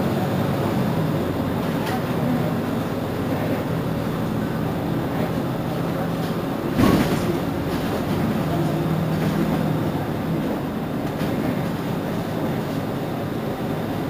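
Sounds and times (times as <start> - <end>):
bus engine idling: 0.0 - 14.0
street noise: 0.0 - 14.0.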